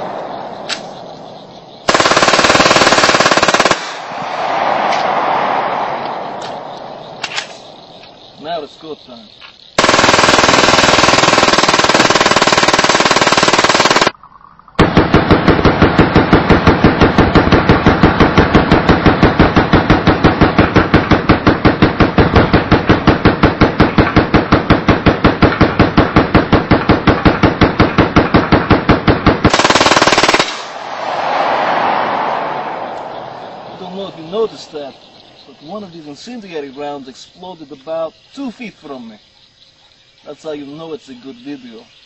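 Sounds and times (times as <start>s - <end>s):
automatic pistol firing: 14.8s - 30.8s.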